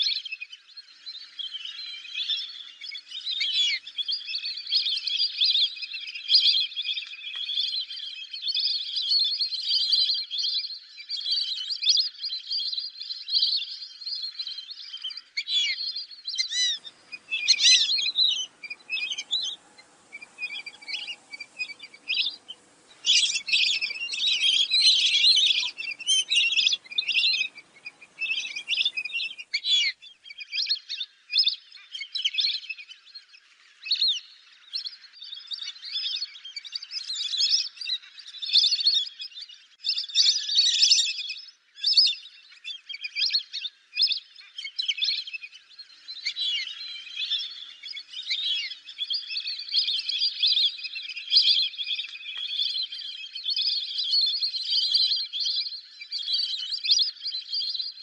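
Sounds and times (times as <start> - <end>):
ducks whistling: 16.4 - 29.9.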